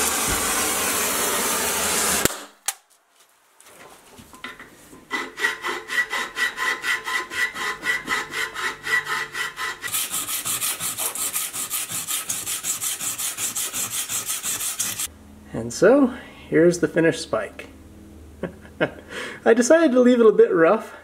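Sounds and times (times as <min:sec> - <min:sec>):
hand file rasping on metal: 0:05.0 - 0:15.1.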